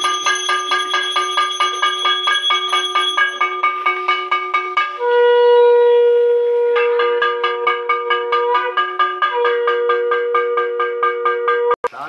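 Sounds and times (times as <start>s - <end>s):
hand bell ringing: 0.0s - 5.1s
conch shell blown: 0.0s - 11.8s.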